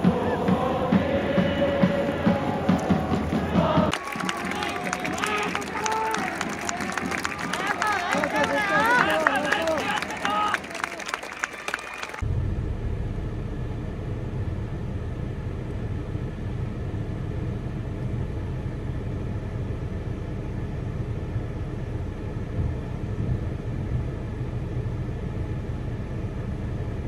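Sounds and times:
car cabin rumble: 12.2 - 27.0.

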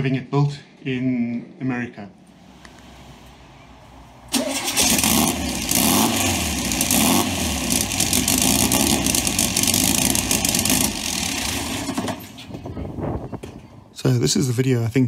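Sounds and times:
car engine running: 2.3 - 12.3.

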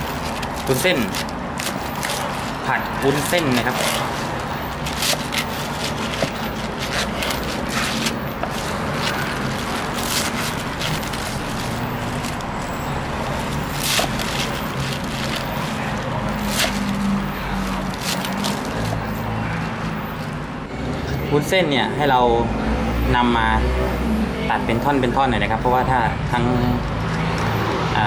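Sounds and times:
steady background hum: 0.0 - 22.0.

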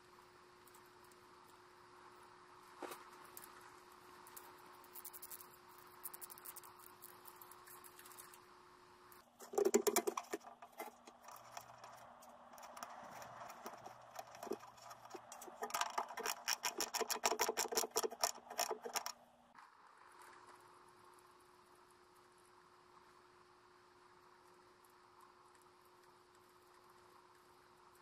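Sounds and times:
hand tools clicking and rattling: 9.4 - 19.1.

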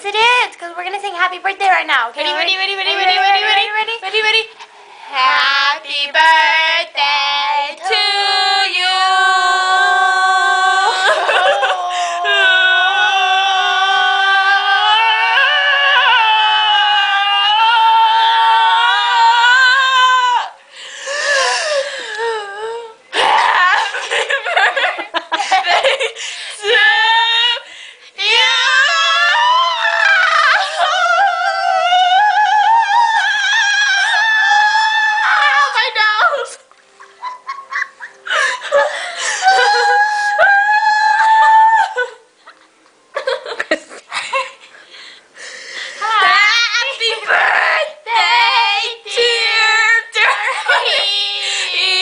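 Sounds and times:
girls' wavering cries: 9.0 - 24.6, 25.6 - 42.4, 46.0 - 52.0
girls shrieking laughter: 10.8 - 12.6, 23.1 - 26.2, 37.0 - 42.3, 50.2 - 51.4
high-pitched cry: 26.6 - 36.6
girl squealing: 33.1 - 36.5.

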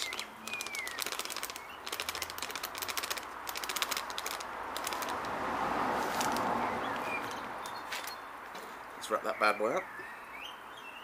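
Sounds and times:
bird chirp: 0.0 - 2.6, 6.2 - 11.0
plastic packet crinkling: 0.0 - 5.3.

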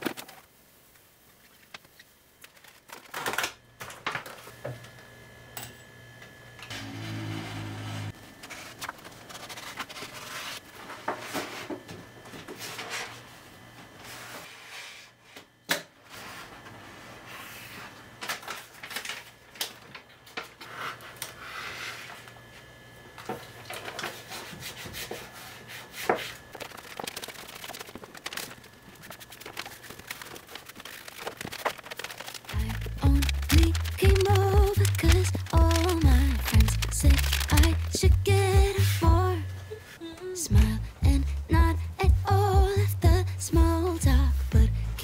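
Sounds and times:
plastic film crinkling: 1.4 - 3.5, 26.4 - 39.0.

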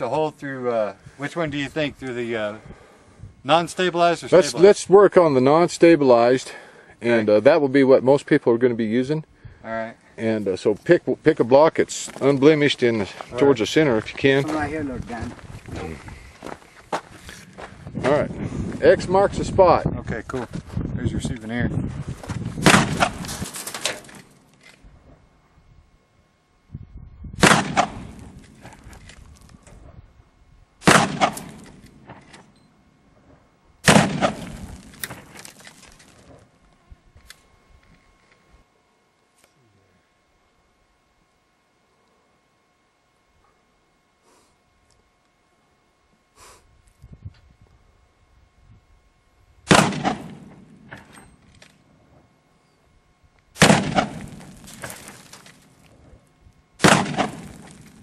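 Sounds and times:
rifle shots: 22.6 - 23.4, 27.4 - 28.5, 30.8 - 32.5, 33.8 - 35.8, 49.7 - 51.1, 53.6 - 55.2, 56.8 - 58.0.

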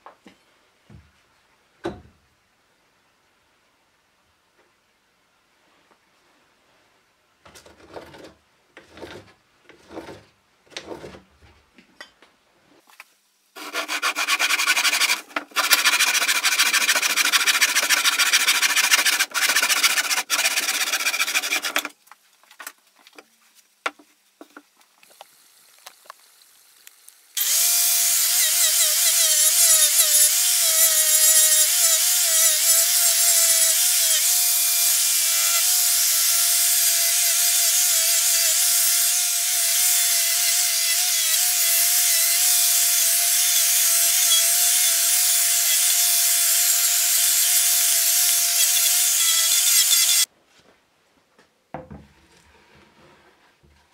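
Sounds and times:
hacksaw cutting wood: 13.6 - 22.0, 27.4 - 50.3
angle grinder whining on wood: 27.4 - 50.3.

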